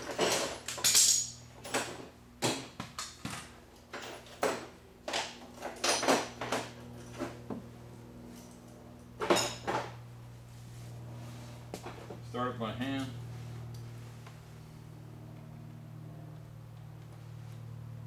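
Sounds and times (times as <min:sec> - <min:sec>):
metal tools clinking and clanking: 0:00.0 - 0:02.0, 0:09.2 - 0:09.9.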